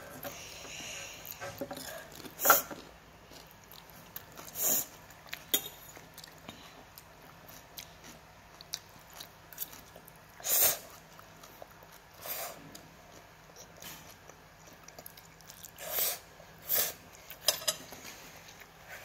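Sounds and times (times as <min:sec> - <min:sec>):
chewing: 0:01.3 - 0:15.8.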